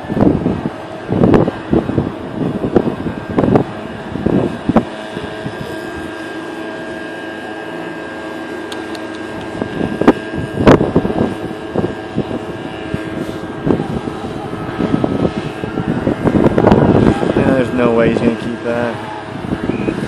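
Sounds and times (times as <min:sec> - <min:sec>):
steady machine hum: 0:00.0 - 0:20.0
wind buffeting microphone: 0:00.0 - 0:20.0.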